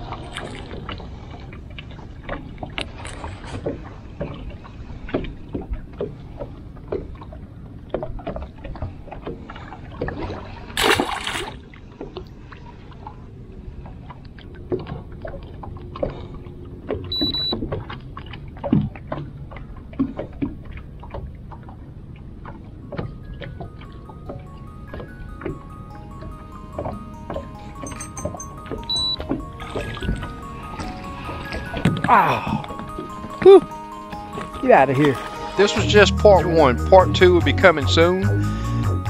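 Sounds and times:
knocks and clicks on boat: 0.0s - 10.4s, 13.8s - 33.4s
water sounds: 0.0s - 38.9s
short high beep: 27.8s - 29.3s.

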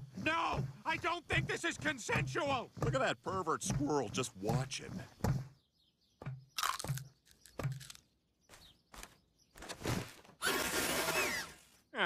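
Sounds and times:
cartoon squirrel crunching acorn: 6.6s - 8.1s.

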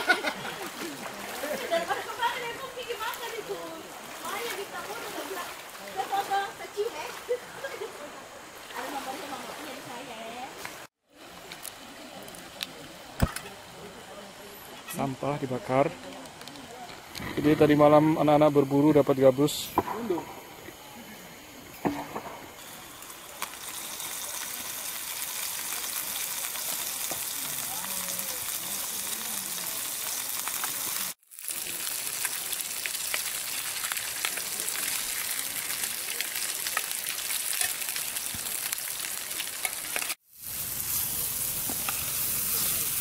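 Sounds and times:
food sizzling in oil: 21.4s - 43.0s.

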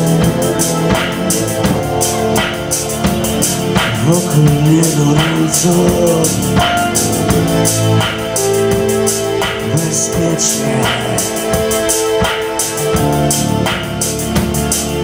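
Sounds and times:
bass guitar: 0.0s - 15.0s
drum kit with cymbals: 0.0s - 15.0s
man singing: 3.8s - 6.8s, 9.6s - 11.9s.

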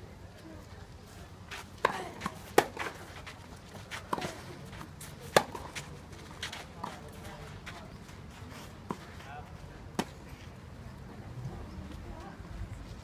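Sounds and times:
tennis ball strikes: 5.3s - 5.8s.

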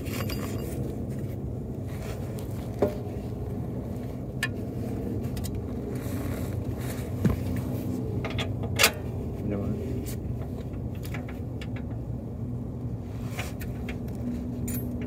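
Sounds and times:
steady low hum: 0.0s - 15.0s
metallic clicks and knocks: 10.3s - 12.1s.

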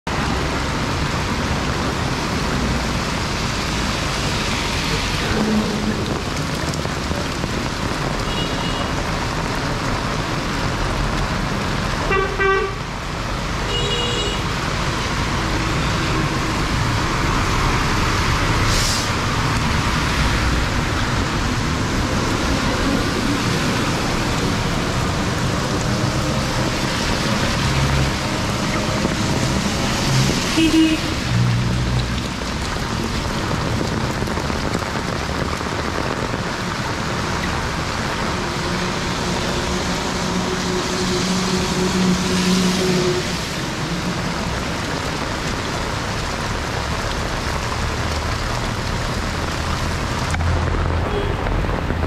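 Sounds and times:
heavy rain on road: 0.1s - 52.0s
vehicle horn toots: 12.1s - 12.8s.

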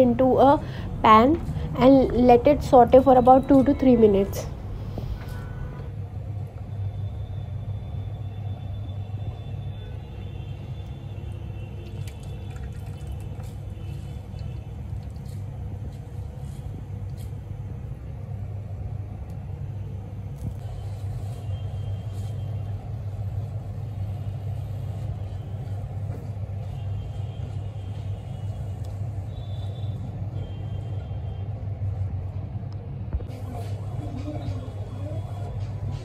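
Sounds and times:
steady low rumble: 0.0s - 6.5s.

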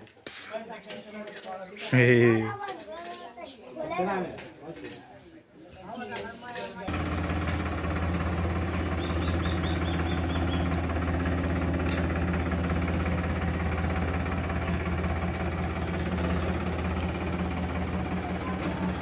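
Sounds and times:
tractor diesel engine running: 6.9s - 19.0s
high chirps: 8.8s - 11.0s.

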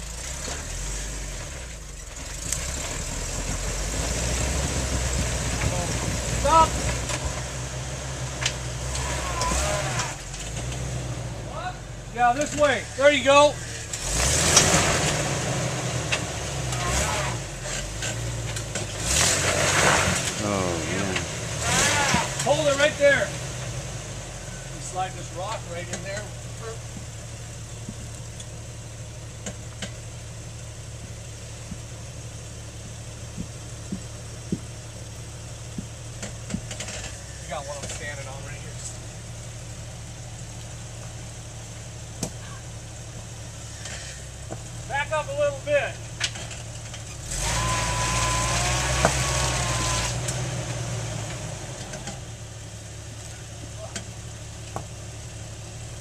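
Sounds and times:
car engine idling: 0.0s - 56.0s
rocks knocking: 33.3s - 34.7s, 35.7s - 36.8s.

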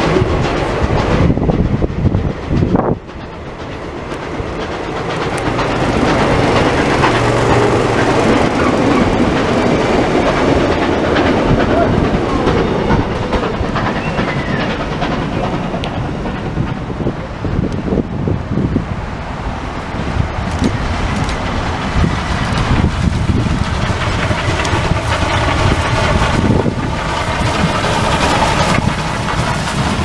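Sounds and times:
train coaches passing: 0.0s - 30.0s.

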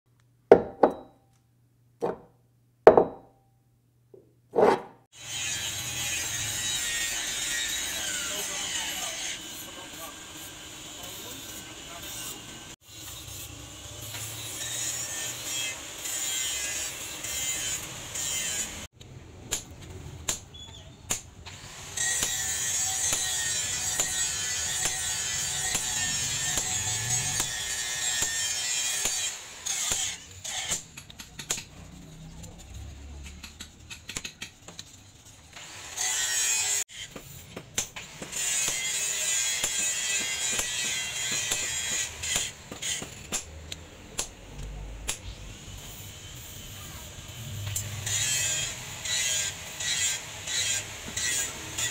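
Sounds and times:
hammer striking chisel on steel: 0.5s - 1.3s, 2.9s - 3.4s, 22.0s - 31.8s, 36.9s - 44.4s.

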